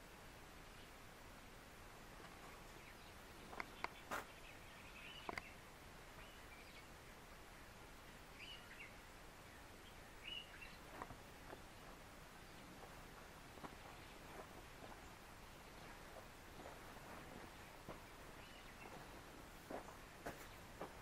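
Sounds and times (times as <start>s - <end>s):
ambient hiss: 0.0s - 21.0s
faint bird chirps: 2.4s - 7.7s, 8.3s - 12.8s, 17.4s - 20.8s.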